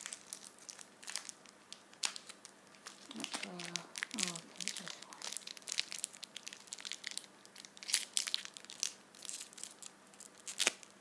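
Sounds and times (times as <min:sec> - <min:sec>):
plastic wrapper crinkling and tearing: 0:00.0 - 0:11.0.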